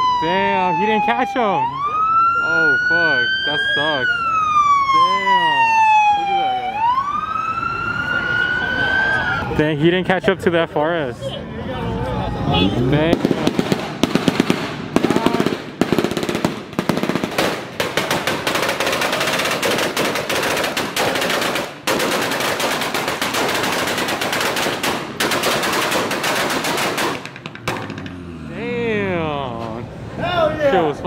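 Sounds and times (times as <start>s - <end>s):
rapid sharp pops and bangs: 13.1s - 28.2s.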